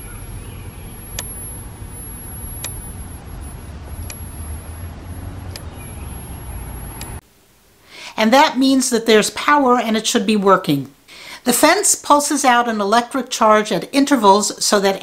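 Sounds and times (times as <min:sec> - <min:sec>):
electric fence controller clicking: 0:00.0 - 0:07.2.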